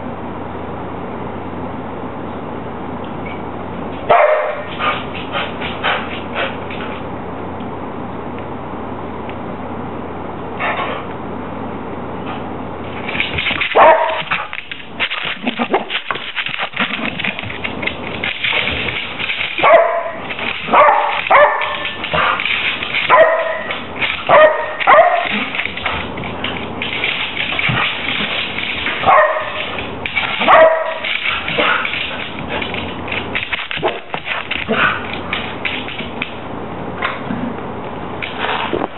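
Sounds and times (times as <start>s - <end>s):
dog barking and yipping: 4.1s - 5.0s, 13.7s - 14.5s, 19.5s - 26.0s, 28.8s - 32.2s
claws scrabbling on wooden floor: 12.8s - 36.4s.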